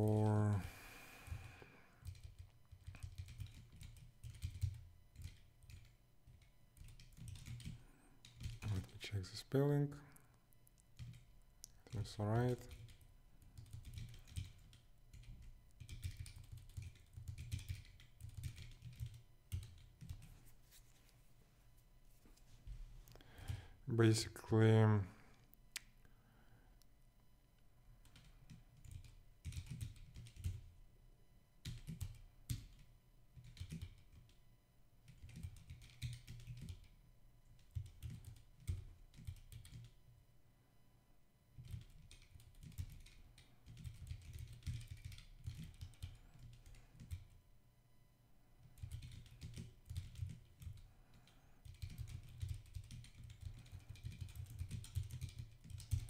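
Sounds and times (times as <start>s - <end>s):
typing on keyboard: 1.3s - 9.0s, 10.9s - 20.4s, 28.0s - 30.7s, 31.6s - 34.4s, 35.0s - 40.0s, 41.6s - 47.4s, 48.6s - 56.0s.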